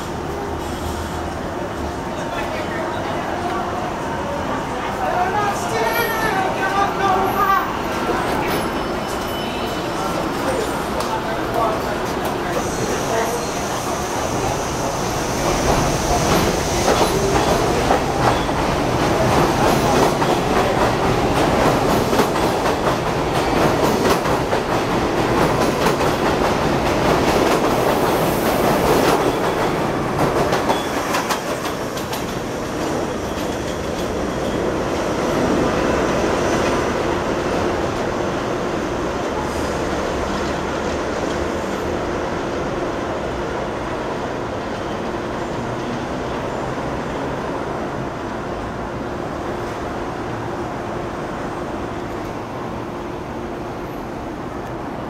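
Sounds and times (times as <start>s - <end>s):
train rumble: 0.0s - 55.0s
train wheels clacking: 15.4s - 34.7s.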